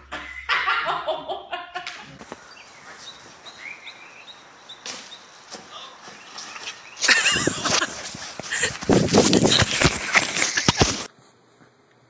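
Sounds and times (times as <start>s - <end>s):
bird chirps: 2.4s - 7.1s.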